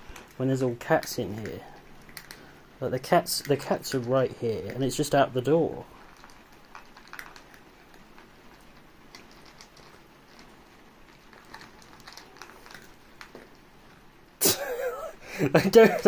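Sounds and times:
faint clicks and ticks: 0.0 - 14.1.

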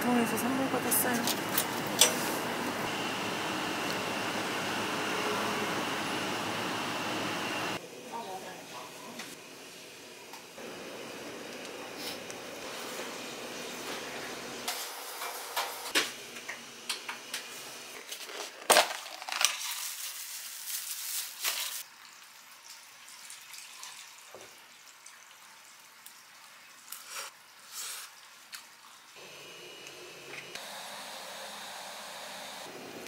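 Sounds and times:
takeout containers being handled: 18.0 - 21.8
plastic bag crinkling: 18.2 - 21.8.

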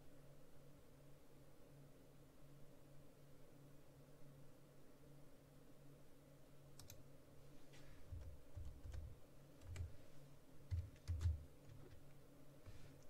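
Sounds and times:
faint steady hum: 0.0 - 13.0
computer keystrokes and clicks: 6.7 - 7.0, 8.1 - 10.0, 10.6 - 12.2.

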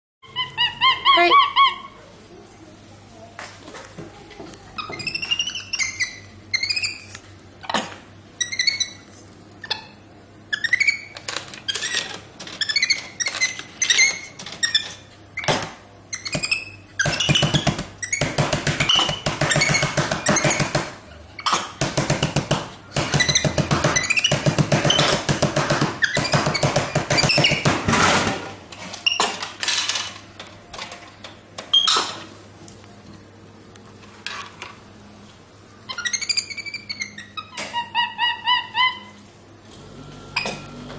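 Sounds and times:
monkey harsh calling: 0.2 - 2.0, 35.9 - 39.2
monkey squeaking and chirping: 0.2 - 2.0, 4.8 - 7.1, 8.4 - 15.5, 16.1 - 20.7, 23.1 - 25.2, 26.0 - 27.6, 35.9 - 39.2.

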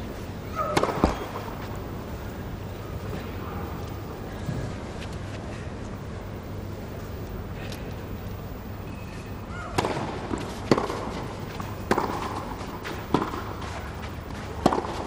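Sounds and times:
tennis ball hit by rackets: 0.6 - 1.6, 9.7 - 13.8, 14.4 - 15.0.

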